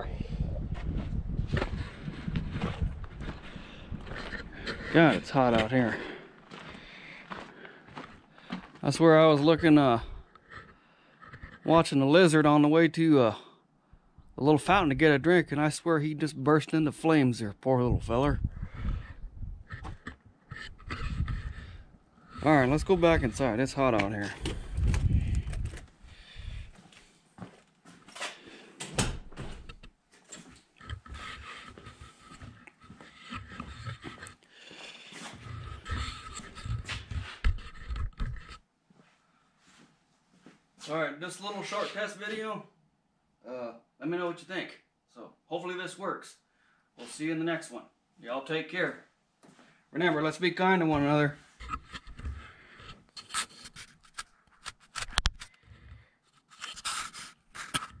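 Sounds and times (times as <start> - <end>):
footsteps on concrete floor: 0.7 - 10.8, 26.5 - 28.3, 30.2 - 40.9
camera handling noise: 24.0 - 26.0, 51.6 - 55.6.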